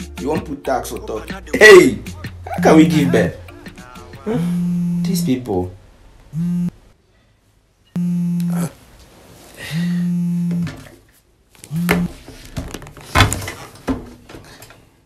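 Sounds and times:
mobile phone buzzing: 4.0s - 5.4s, 6.3s - 6.8s, 8.0s - 8.8s, 9.7s - 10.8s, 11.7s - 12.1s.

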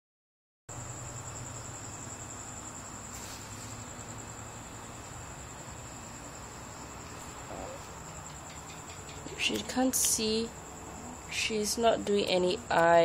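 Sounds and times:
cricket trilling: 0.7s - 13.0s
low steady hum: 0.7s - 13.0s.

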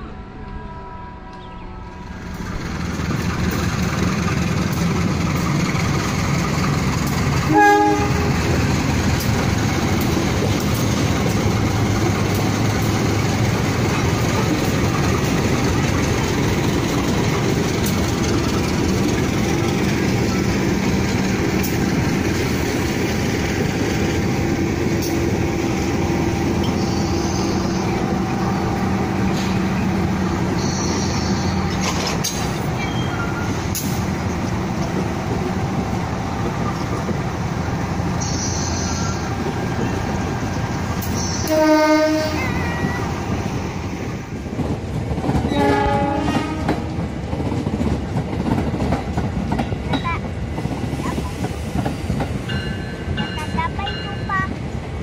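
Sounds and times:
train horn blast: 0.2s - 2.2s, 7.4s - 8.5s, 41.2s - 42.7s, 45.5s - 47.0s
train wheels rumbling on track: 1.3s - 55.0s.

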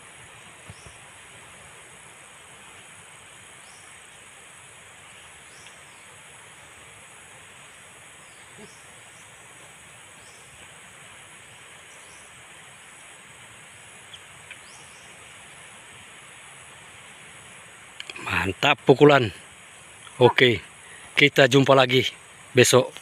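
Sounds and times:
constant hiss: 0.0s - 23.0s
insect chorus: 0.0s - 23.0s
faint clicks: 5.6s - 5.8s.

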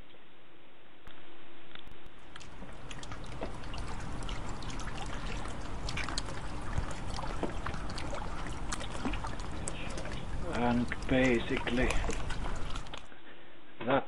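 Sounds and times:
liquid swishing and sloshing: 2.1s - 13.1s.

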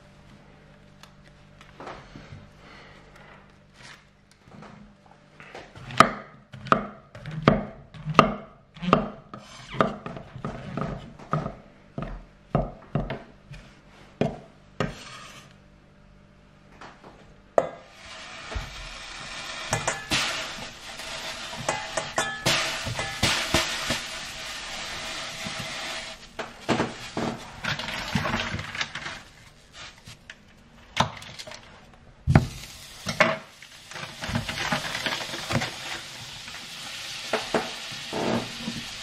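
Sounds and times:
fat sizzling in frying pan: 17.9s - 28.3s, 32.4s - 39.0s.

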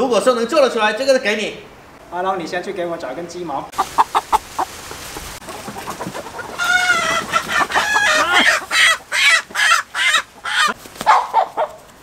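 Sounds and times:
chickens squawking and clucking: 3.7s - 11.9s.

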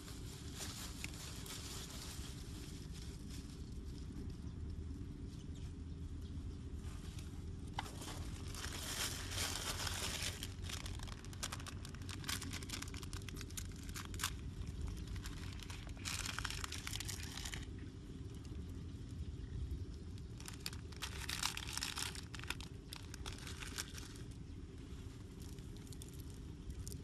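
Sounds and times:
plastic bag crinkling: 0.0s - 4.0s, 7.7s - 17.8s, 20.1s - 27.0s
steady low rumble: 0.0s - 27.0s.

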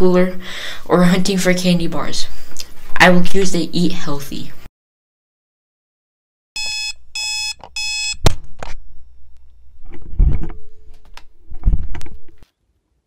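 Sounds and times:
alarm clock beeping: 6.6s - 8.2s.

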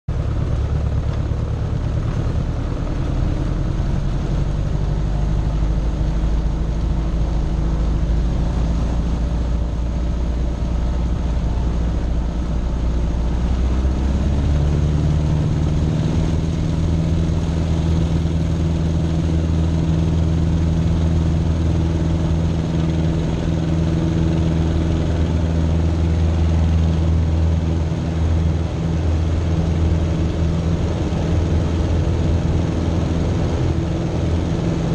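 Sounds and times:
light plane engine and propeller: 0.1s - 34.9s.

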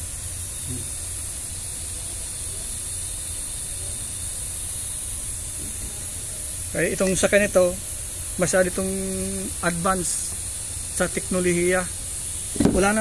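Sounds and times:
steady background hiss: 4.6s - 13.0s.

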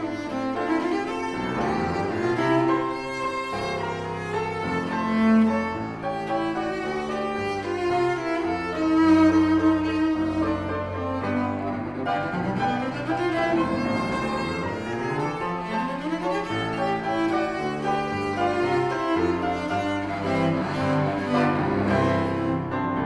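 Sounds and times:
cello playing: 0.0s - 23.0s
grand piano playing: 0.0s - 23.0s.

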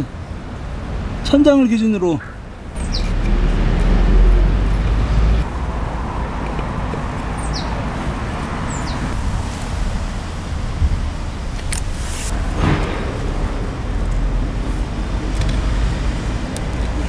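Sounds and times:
rushing background noise: 0.0s - 17.0s
low rumble: 9.1s - 16.6s.

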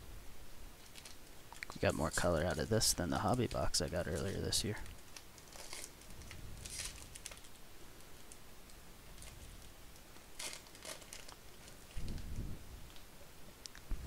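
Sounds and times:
foil wrapper crinkling: 0.8s - 7.6s, 9.1s - 13.0s.

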